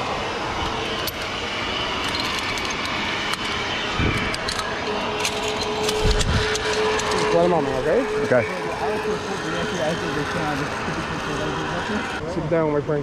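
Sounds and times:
steady rushing noise: 0.0 - 13.0
metal hardware clinking: 0.6 - 1.4, 2.0 - 7.4.

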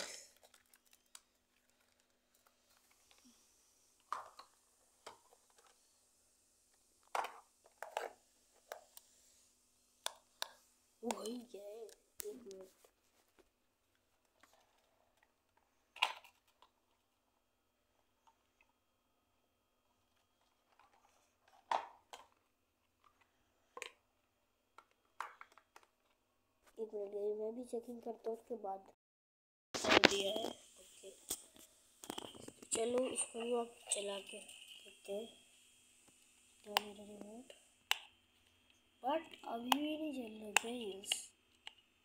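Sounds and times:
plastic objects clicking and knocking: 0.2 - 3.3, 4.0 - 5.8, 7.0 - 9.0, 14.2 - 17.1, 20.0 - 26.2, 32.0 - 32.7.

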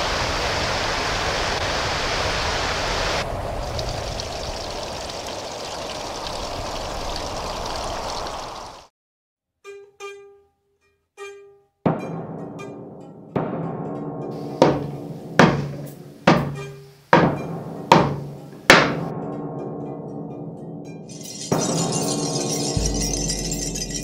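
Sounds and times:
river rushing over stones: 0.0 - 8.9.

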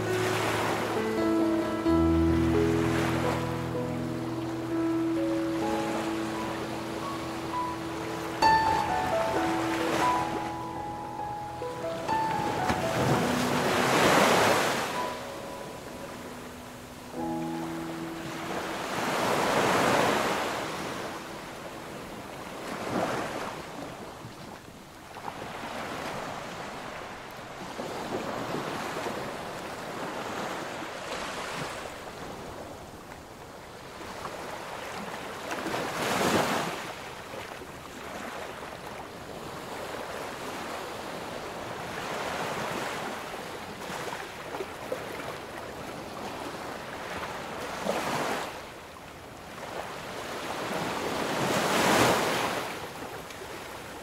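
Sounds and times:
waves crashing: 0.0 - 54.0
waves washing on beach: 0.0 - 54.0.

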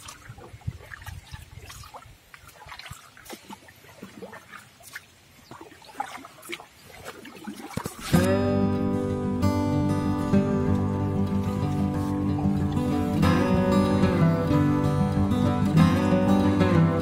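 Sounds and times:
small clicks and splashes: 0.0 - 8.4
river water trickling and lapping: 0.0 - 17.0
acoustic guitar music: 8.0 - 17.0.

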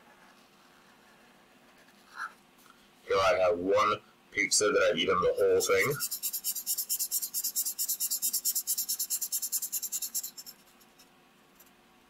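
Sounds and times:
marker scribbling on paper: 5.6 - 11.0.

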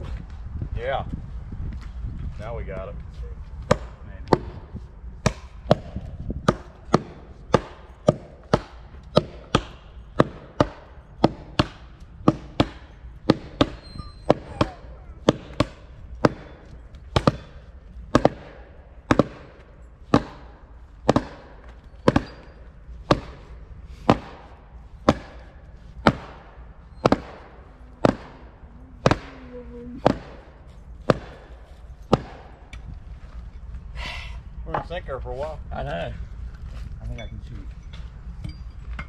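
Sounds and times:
axes chopping into a log: 5.2 - 29.4, 30.0 - 32.8.

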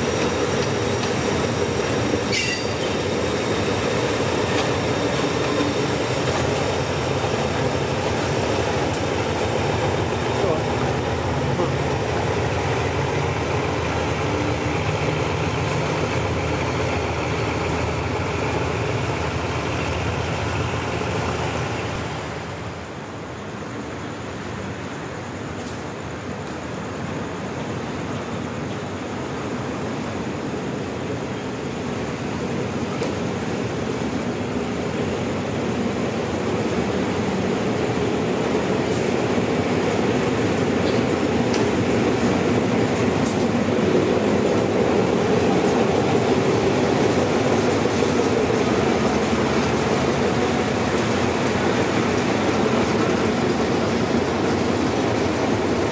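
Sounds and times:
locomotive engine droning: 0.0 - 22.1
diesel locomotive engine rumble: 0.0 - 55.9
brief high squeak: 2.3 - 2.9.

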